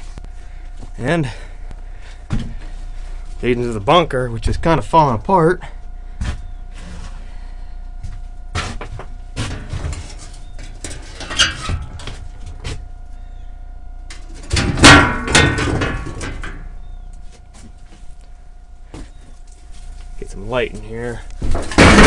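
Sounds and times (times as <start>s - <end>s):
footsteps: 6.2s - 7.2s, 8.0s - 10.4s
knocks and clatter: 21.4s - 22.0s.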